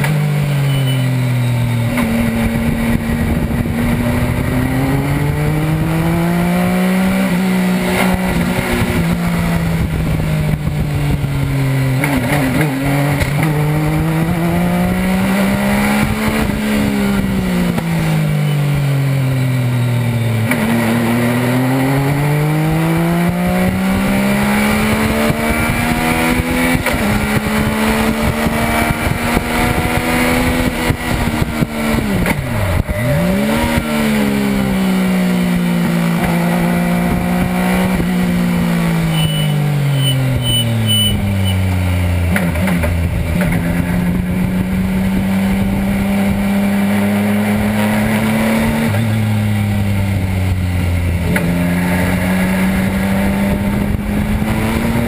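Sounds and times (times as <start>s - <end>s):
motorcycle engine revving: 0.0s - 55.0s.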